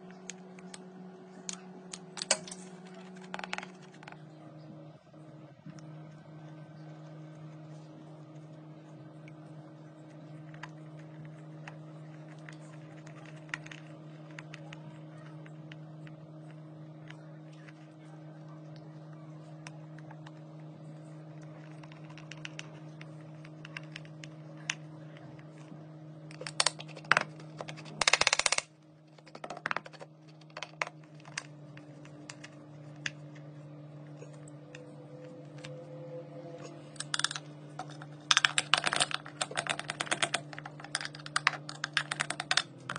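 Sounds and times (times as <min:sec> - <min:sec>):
low steady hum: 0:00.0 - 0:42.9.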